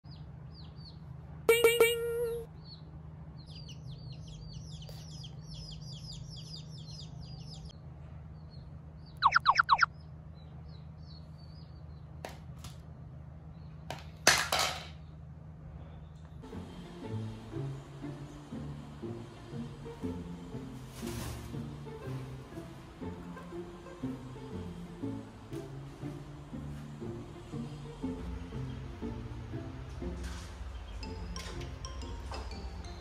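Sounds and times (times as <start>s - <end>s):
baby chicks peeping: 0.1s - 7.7s, 8.4s - 12.1s
rustling noise: 20.8s - 21.7s.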